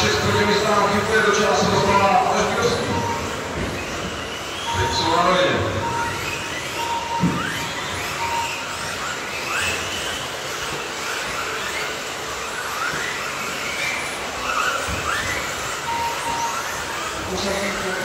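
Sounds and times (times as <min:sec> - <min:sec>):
steady rush of noise: 0:00.0 - 0:09.3
rc car motor whines: 0:00.0 - 0:18.0
short electronic beep: 0:01.6 - 0:09.7, 0:15.8 - 0:17.3.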